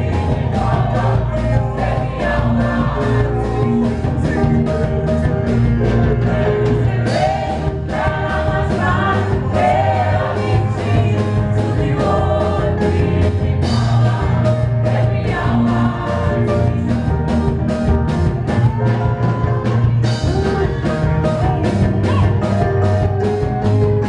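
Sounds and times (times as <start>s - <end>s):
people singing: 0.0s - 17.6s
drum kit beat: 0.0s - 24.0s
gospel band playing: 0.0s - 24.0s.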